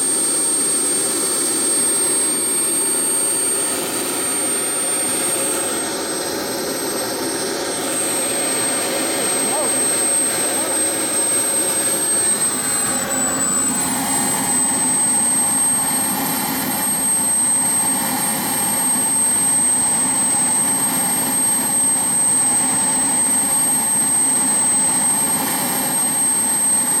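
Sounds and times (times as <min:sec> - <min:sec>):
high-pitched turbine whine: 0:00.0 - 0:27.0
jet turbine exhaust rush: 0:03.8 - 0:27.0.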